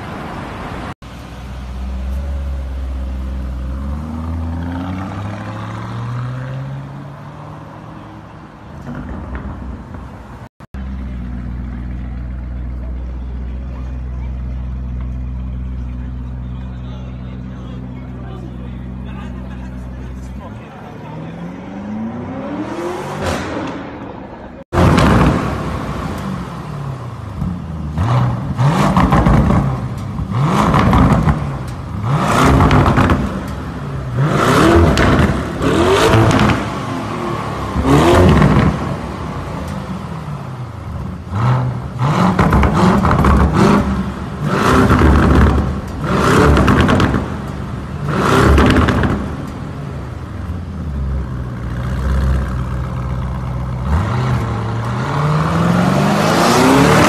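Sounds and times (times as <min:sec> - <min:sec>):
car exhaust revving: 0:21.2 - 0:57.0.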